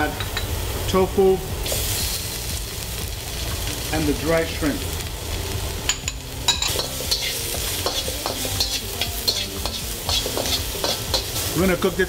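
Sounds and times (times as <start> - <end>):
food sizzling: 0.0 - 12.0
metal spatula scraping wok: 6.5 - 11.6.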